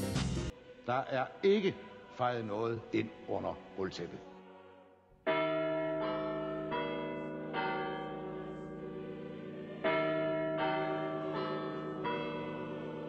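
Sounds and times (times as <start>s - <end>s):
tower bells chiming a melody: 5.3s - 13.0s.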